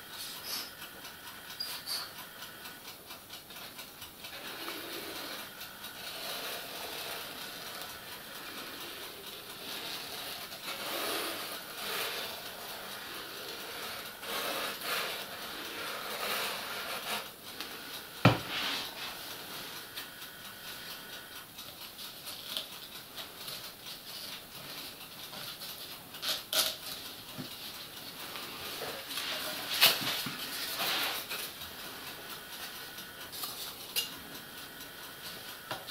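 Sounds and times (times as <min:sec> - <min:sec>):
sharp knocks on workbench: 0:18.2 - 0:18.5.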